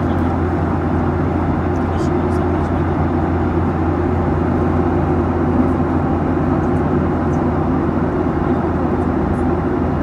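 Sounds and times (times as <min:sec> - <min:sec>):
airliner cabin engine drone: 0:00.0 - 0:10.0.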